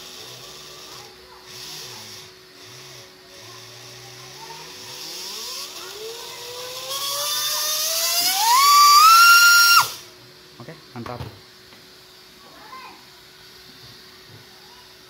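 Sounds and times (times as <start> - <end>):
electric motor whine: 0.0 - 10.2.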